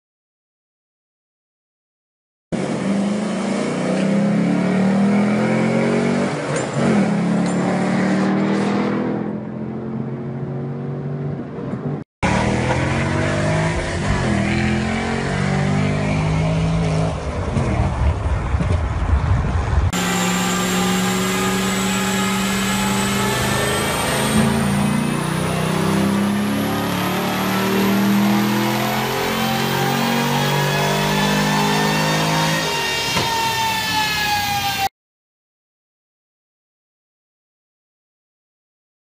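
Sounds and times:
car engine on a dyno: 2.6 - 34.9
car engine running hard: 5.2 - 32.4
heavy low rumble: 17.1 - 19.9.

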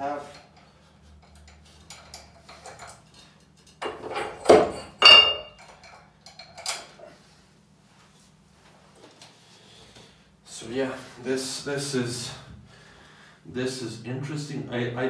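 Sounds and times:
weight plates clanking: 3.8 - 5.6.

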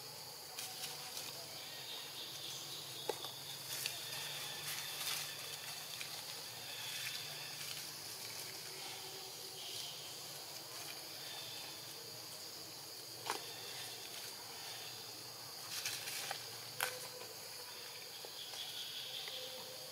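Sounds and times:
insect chorus buzzing: 0.0 - 19.9
rustles in leaf litter: 3.7 - 9.0.

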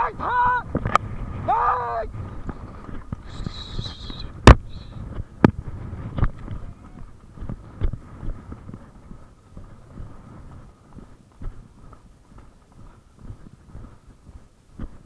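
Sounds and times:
horse hoofbeats on grass: 0.0 - 15.0
sharp knocks: 4.4 - 4.7.

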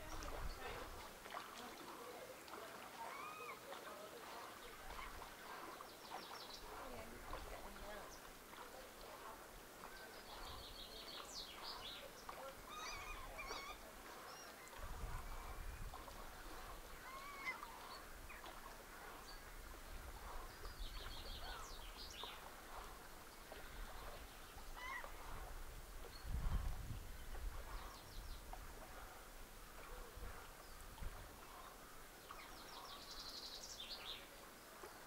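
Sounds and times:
birds calling and chirping: 0.0 - 34.4.

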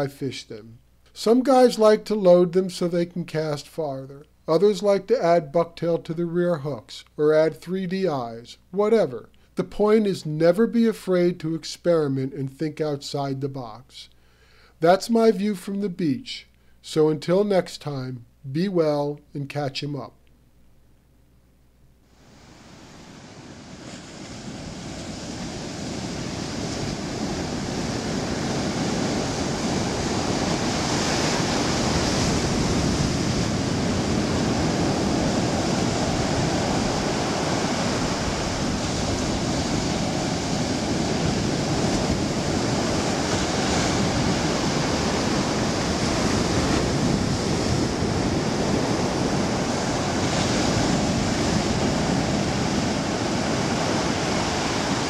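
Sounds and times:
ocean surf breaking on beach: 22.2 - 55.0.

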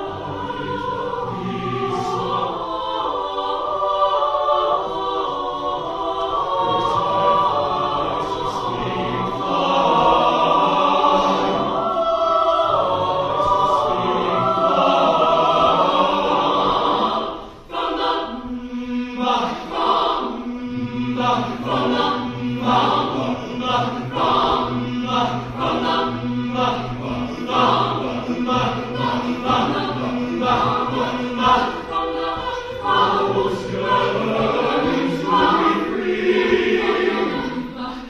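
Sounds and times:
mixed choir singing: 0.0 - 38.0.

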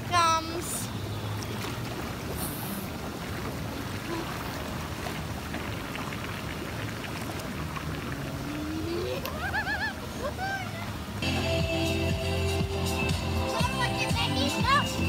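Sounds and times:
rushing river water: 0.0 - 15.0.

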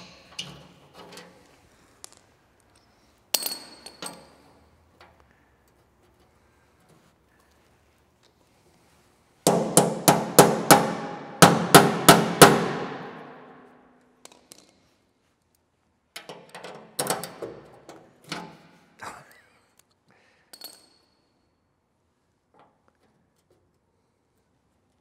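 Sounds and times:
small metal parts clinking: 2.0 - 5.2, 20.5 - 21.5.

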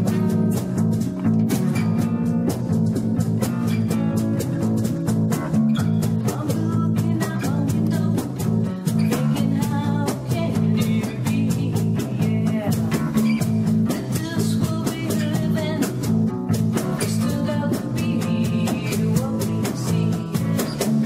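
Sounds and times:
djembe hand-drum beat: 0.0 - 21.0
strummed acoustic guitars: 0.0 - 21.0
woman singing: 6.0 - 21.0.

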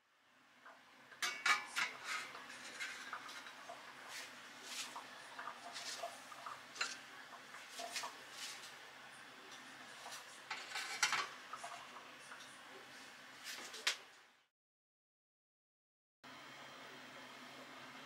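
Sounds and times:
ramekins clinking on metal rack: 1.2 - 3.4.

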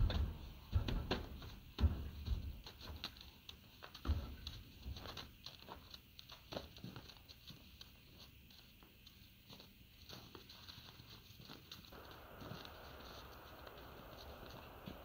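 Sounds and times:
hoof thump on trailer floor: 0.0 - 3.3, 3.9 - 5.2
hoof steps on snow: 0.0 - 15.0.

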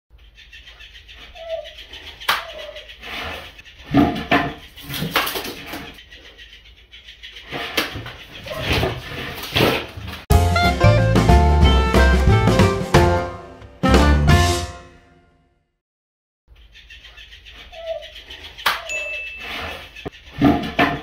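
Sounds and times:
dog whining: 1.2 - 1.8.

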